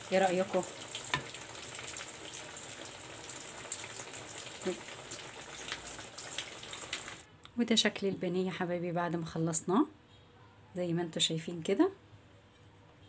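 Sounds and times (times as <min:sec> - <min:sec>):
hot oil sizzling and crackling: 0:00.0 - 0:07.3.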